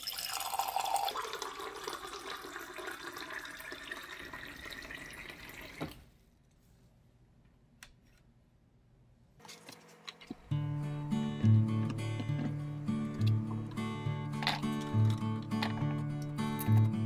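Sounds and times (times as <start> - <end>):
water pouring into a glass: 0.0 - 6.0.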